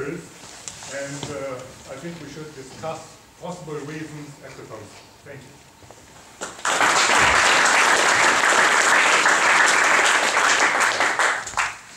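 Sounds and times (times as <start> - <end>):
audience applauding: 6.4 - 11.9.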